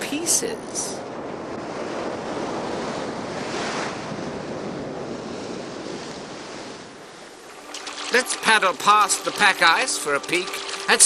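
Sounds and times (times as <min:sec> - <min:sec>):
glacier ice calving and crashing: 0:07.4 - 0:11.0
water splashing: 0:07.4 - 0:11.0.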